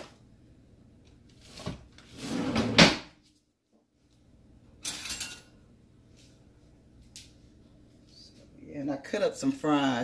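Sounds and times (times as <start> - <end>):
drawer sliding and knocking shut: 1.6 - 3.1.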